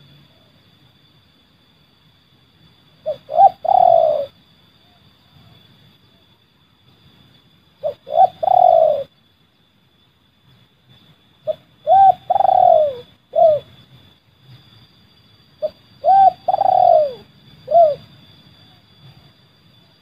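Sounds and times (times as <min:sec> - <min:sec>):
dove cooing: 0:03.0 - 0:04.4, 0:07.8 - 0:09.1, 0:11.4 - 0:13.7, 0:15.6 - 0:19.3.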